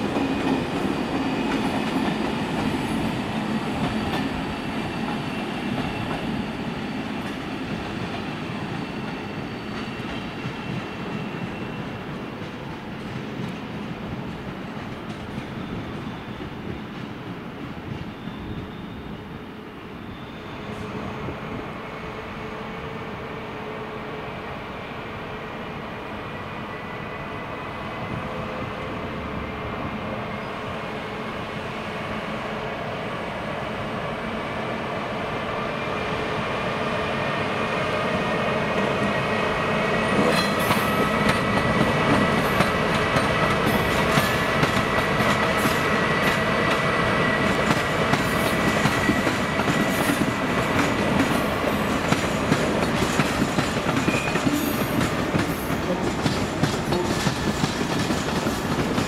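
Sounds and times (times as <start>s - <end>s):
train wheels clicking on rail joints: 0.0s - 18.3s, 38.7s - 59.0s
electric locomotive whining: 0.0s - 59.0s.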